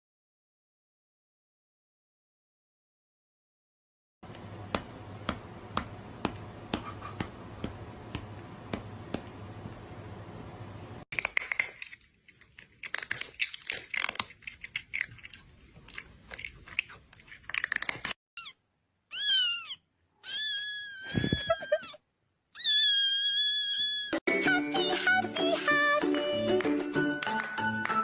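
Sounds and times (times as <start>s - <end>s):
cat crunching food: 11.2s - 18.2s
cat meowing: 18.4s - 21.9s, 22.6s - 24.2s.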